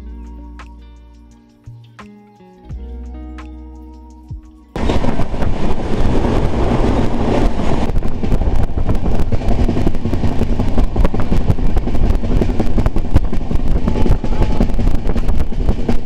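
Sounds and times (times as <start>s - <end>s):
air rushing past: 4.8s - 16.0s
freight wagon passing: 4.8s - 16.0s
train rumble: 4.8s - 16.0s
train wheels clattering on rail: 4.8s - 16.0s.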